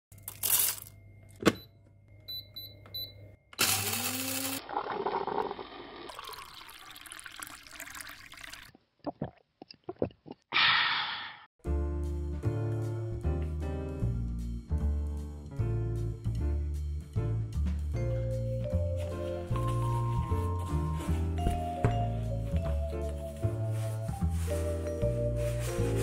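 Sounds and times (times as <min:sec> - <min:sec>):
coffee machine running: 0:03.6 - 0:06.1
coffee pouring into a mug: 0:04.6 - 0:08.7
jazzy music with walking bass: 0:11.7 - 0:26.0.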